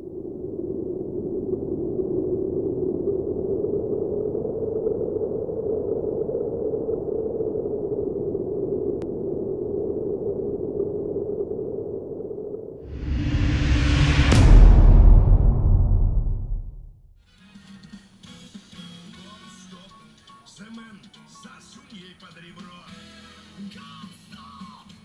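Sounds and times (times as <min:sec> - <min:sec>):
low synthesized drone: 0:12.9 - 0:17.2.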